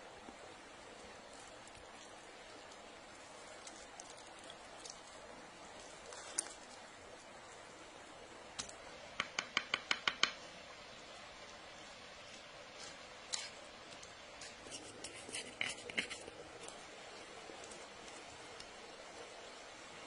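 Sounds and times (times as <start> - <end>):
knife scraping crusty bread: 14.4 - 16.8.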